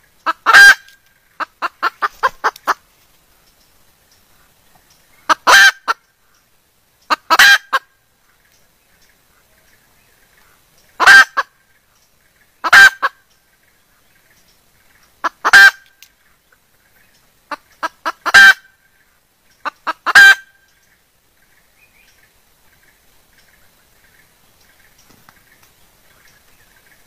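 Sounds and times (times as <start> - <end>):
junglefowl hen calling: 0.0 - 2.9, 5.1 - 8.4, 10.4 - 11.8, 12.4 - 13.3, 14.8 - 21.0.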